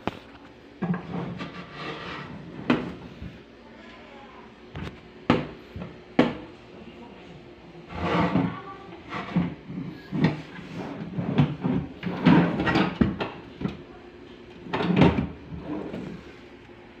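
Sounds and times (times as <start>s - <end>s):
wooden drawers scraping: 0.8s - 3.0s, 7.9s - 13.3s, 14.6s - 16.3s.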